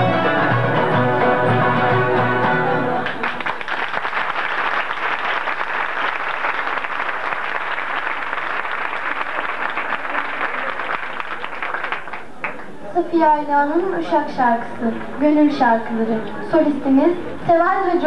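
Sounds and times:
audience applauding: 2.8s - 12.8s.

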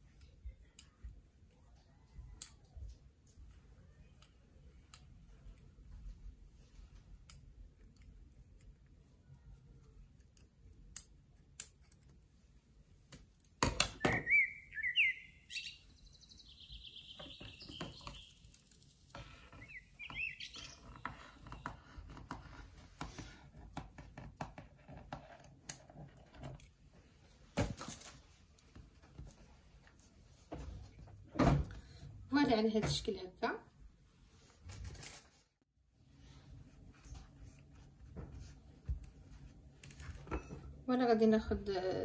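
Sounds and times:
high chirping sound: 14.0s - 18.7s, 19.5s - 21.6s
papery rustling: 34.4s - 35.6s.

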